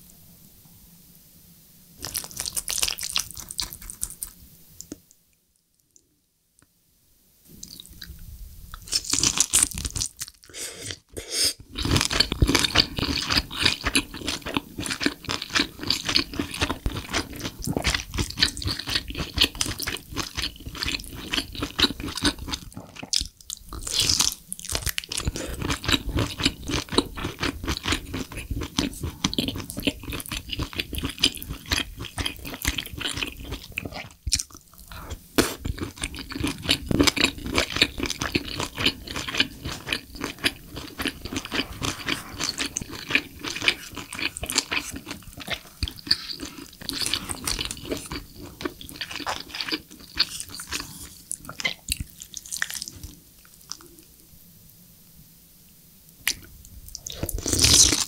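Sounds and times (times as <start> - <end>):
mouth chewing sounds: 11.6 - 54.0.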